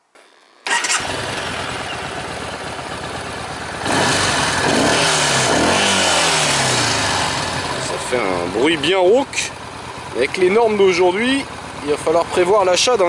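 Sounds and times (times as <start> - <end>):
motorcycle engine starting and revving: 0.1 - 13.0.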